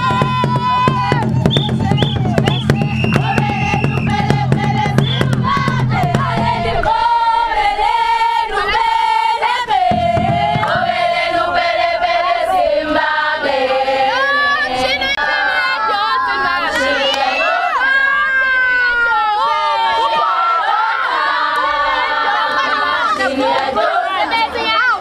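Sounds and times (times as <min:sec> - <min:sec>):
sharp beats: 0:00.0 - 0:07.0, 0:09.7 - 0:11.6
women singing in chorus: 0:00.0 - 0:25.0.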